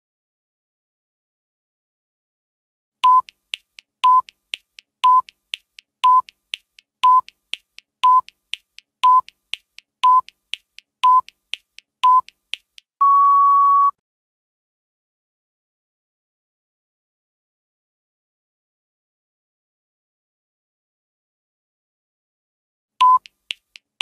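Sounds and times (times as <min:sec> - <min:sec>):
short electronic beeps: 0:03.0 - 0:03.3, 0:04.0 - 0:04.3, 0:05.0 - 0:05.3, 0:06.0 - 0:06.3, 0:07.0 - 0:07.3, 0:08.0 - 0:08.3, 0:09.0 - 0:09.3, 0:10.0 - 0:10.3, 0:11.0 - 0:11.3, 0:13.0 - 0:14.0, 0:23.0 - 0:23.3
quiet timer ticks: 0:03.0 - 0:12.9, 0:23.0 - 0:24.0
longer higher beep: 0:13.0 - 0:14.0.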